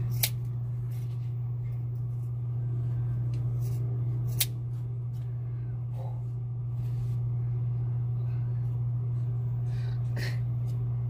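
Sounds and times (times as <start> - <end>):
scissors cutting hair: 0.0 - 0.5, 3.4 - 4.6
low hum: 0.0 - 11.0.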